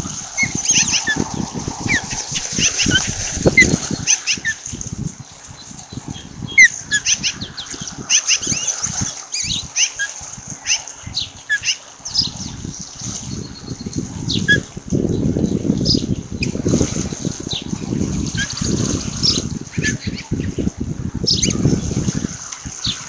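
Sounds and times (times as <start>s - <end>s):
birds whistled chirps: 0.4s - 4.6s, 5.6s - 8.7s, 9.3s - 12.5s, 13.3s - 14.7s, 21.3s - 21.6s.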